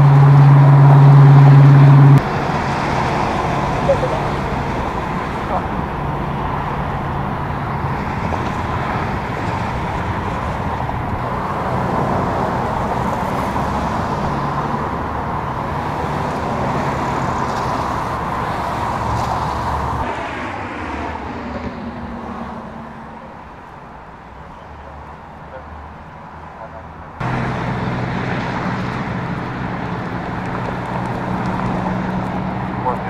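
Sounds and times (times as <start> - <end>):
low engine hum: 0.0 - 33.0
vehicle passing: 0.0 - 33.0
tyres hissing on wet road: 27.2 - 33.0.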